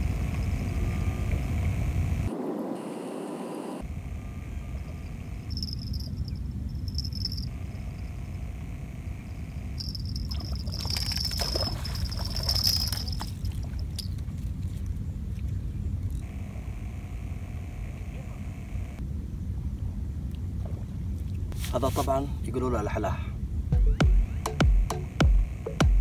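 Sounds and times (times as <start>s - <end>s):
wind rumbling on microphone: 0.0s - 2.6s
fishing reel whirring: 5.4s - 8.1s, 9.5s - 14.1s.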